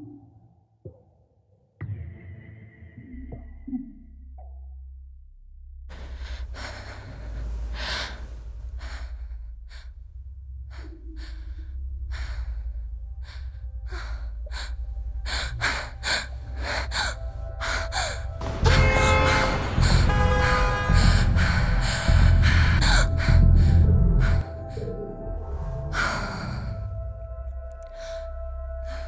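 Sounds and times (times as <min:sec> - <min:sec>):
low rumble: 0:02.9 - 0:29.0
girl breathing and gasping: 0:05.9 - 0:09.9.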